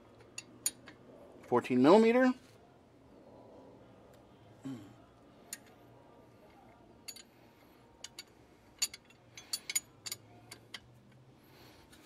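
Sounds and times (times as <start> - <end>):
metal wrench clicking: 7.0 - 7.3, 8.0 - 11.2.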